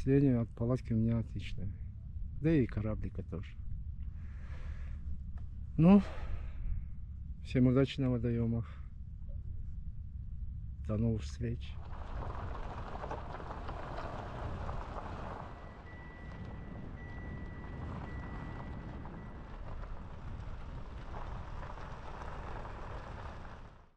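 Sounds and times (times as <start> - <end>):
car road rumble on dirt track: 0.0 - 23.9
wind rushing over microphone: 11.7 - 23.8.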